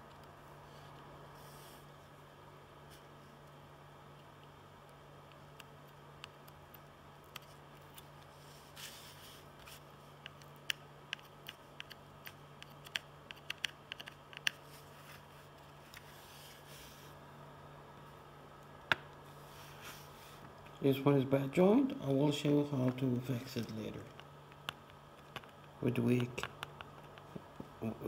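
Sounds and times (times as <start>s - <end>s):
low steady hum: 0.0s - 28.0s
soldering clicks and ticks: 4.2s - 7.9s, 10.2s - 14.6s.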